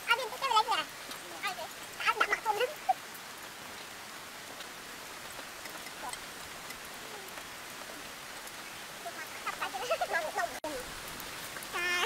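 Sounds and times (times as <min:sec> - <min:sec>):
faint background hiss: 0:00.0 - 0:12.0
faint voice: 0:11.7 - 0:12.0.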